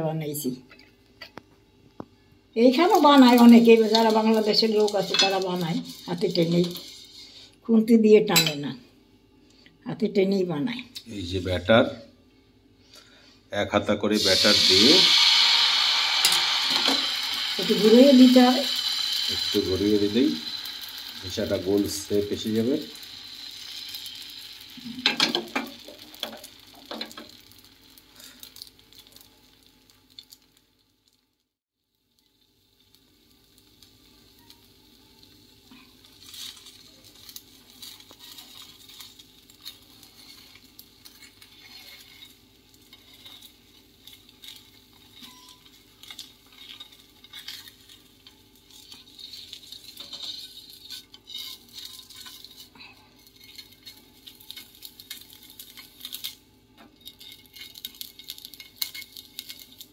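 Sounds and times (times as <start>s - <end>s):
batter sizzling in pan: 2.6s - 8.6s, 12.8s - 59.9s
pan rattling on burner grate: 2.9s - 7.0s, 36.2s - 56.4s, 57.0s - 59.9s.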